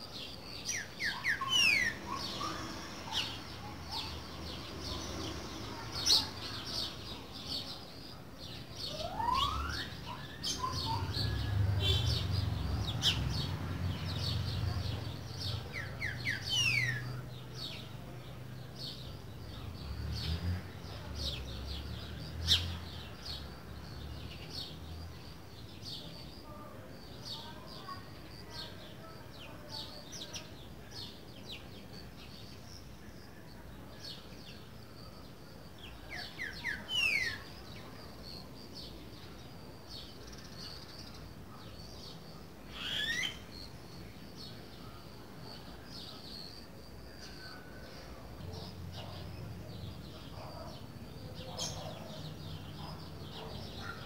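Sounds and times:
bird whistling and chirping: 0.7 - 3.3, 8.9 - 11.4, 42.7 - 43.4.

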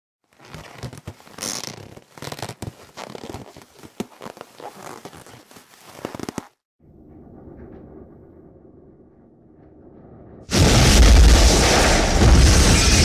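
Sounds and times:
crackling and tearing noise: 0.3 - 6.6.

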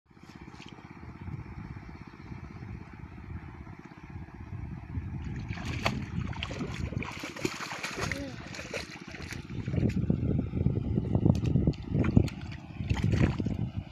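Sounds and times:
small engine running: 0.1 - 13.9
water splashing: 5.2 - 10.2, 11.4 - 13.7.

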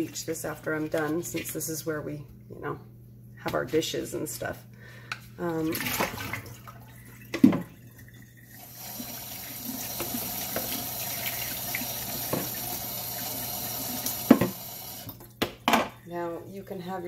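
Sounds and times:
tap water splashing on plastic: 9.8 - 12.6, 14.1 - 15.6.

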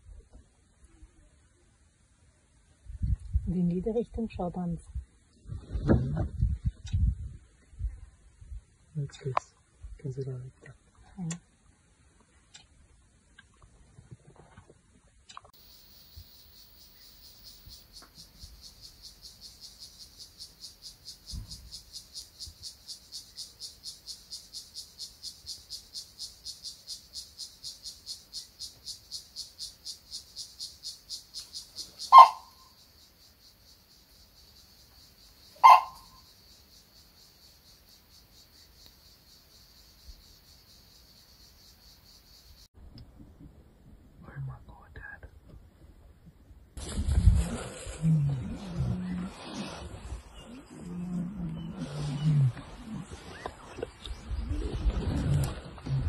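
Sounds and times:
insect chirring: 15.4 - 42.7.

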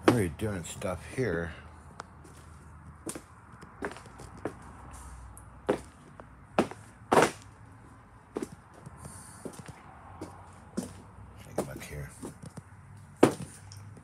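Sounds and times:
knocks and thumps: 13.2 - 13.6.

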